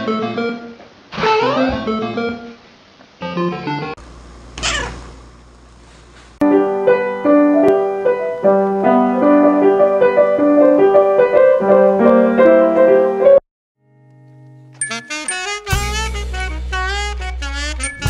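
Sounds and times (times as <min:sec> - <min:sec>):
grand piano melody: 0:06.4 - 0:13.4.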